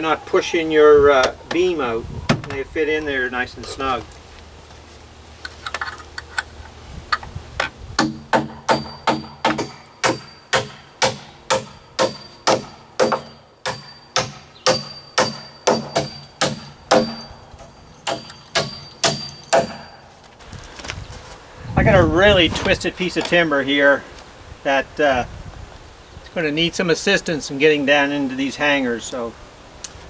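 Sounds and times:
hammer striking nails into metal: 0:08.0 - 0:20.0.

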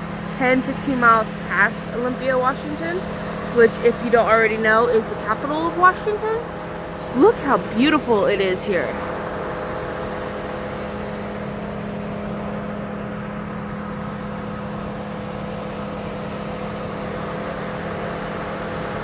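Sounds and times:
traffic engine hum: 0:00.0 - 0:19.0.

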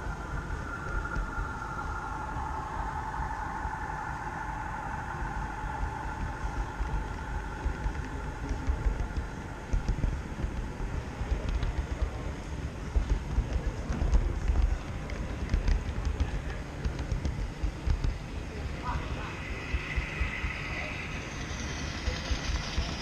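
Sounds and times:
faint whine: 0:00.0 - 0:23.0
model train wheels rumbling on rails: 0:00.0 - 0:23.0
clicks and knocks of train: 0:06.5 - 0:23.0.

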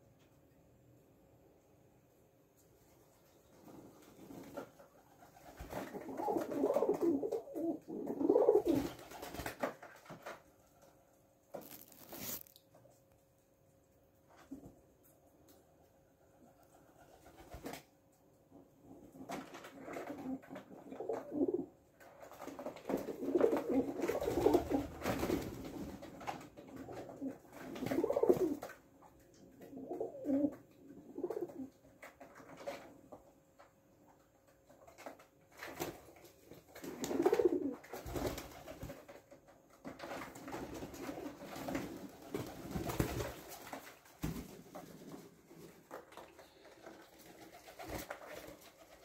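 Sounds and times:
pigeon wingbeats: 0:03.5 - 0:10.9, 0:16.3 - 0:17.9, 0:18.9 - 0:28.8, 0:34.6 - 0:49.0
pigeons cooing: 0:05.8 - 0:08.9, 0:27.0 - 0:28.6, 0:29.7 - 0:31.7, 0:36.9 - 0:37.8.

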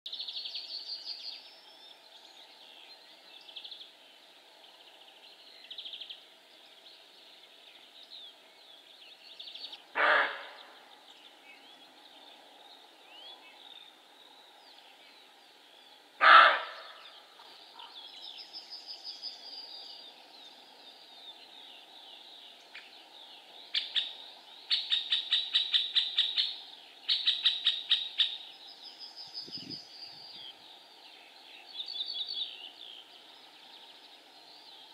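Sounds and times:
songbirds singing: 0:00.1 - 0:34.9
deer barking: 0:10.0 - 0:10.6, 0:16.2 - 0:16.9.

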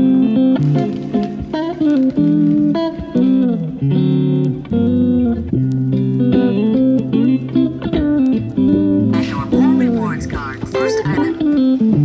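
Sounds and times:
guitar instrumental with bass: 0:00.0 - 0:12.0.

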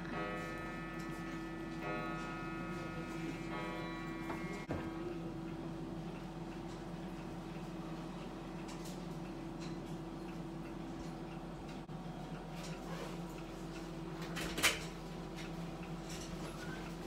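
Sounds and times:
indoor room hum: 0:00.0 - 0:17.0.

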